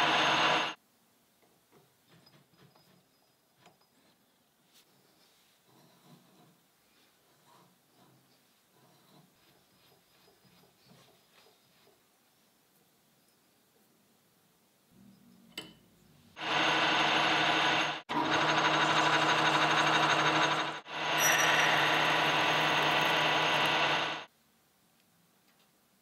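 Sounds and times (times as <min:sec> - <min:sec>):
metal lathe whining: 0:00.0 - 0:00.8, 0:16.4 - 0:24.3.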